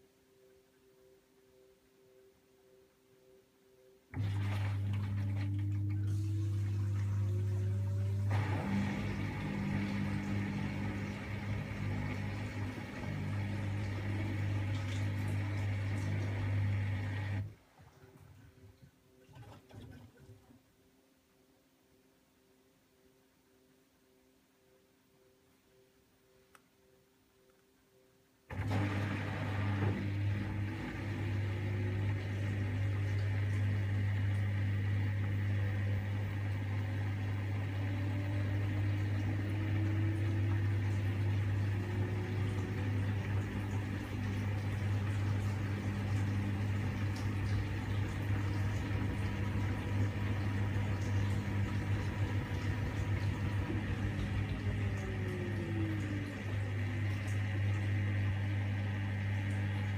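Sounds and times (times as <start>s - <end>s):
washing machine spinning: 4.1s - 20.4s, 28.5s - 59.9s.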